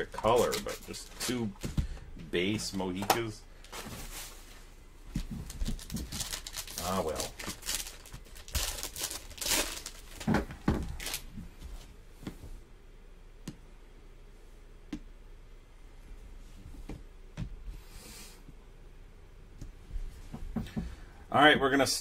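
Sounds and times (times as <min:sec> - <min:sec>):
foil wrapper crinkling and tearing: 0:00.0 - 0:01.5, 0:05.4 - 0:10.3, 0:10.9 - 0:11.3.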